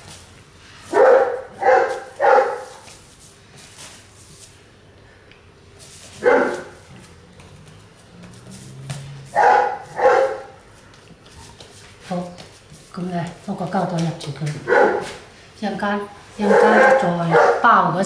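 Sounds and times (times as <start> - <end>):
dog barking: 0.9 - 2.8, 6.2 - 6.8, 9.3 - 10.6, 14.7 - 15.2, 16.4 - 17.8.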